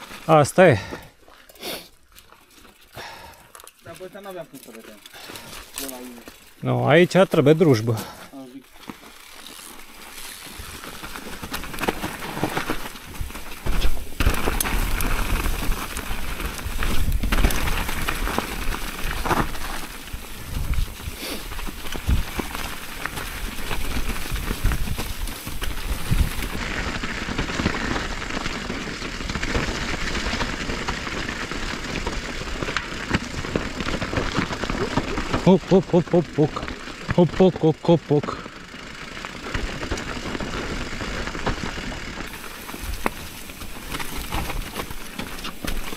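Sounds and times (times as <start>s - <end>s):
tyres crackling over leaf litter: 0.0s - 45.9s
bike knocking and rattling: 8.8s - 37.3s, 38.3s - 45.9s.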